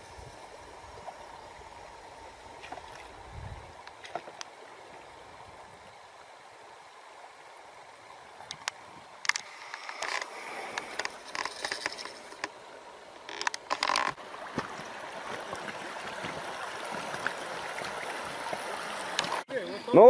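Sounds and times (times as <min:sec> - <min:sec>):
river water running: 0:00.0 - 0:20.0.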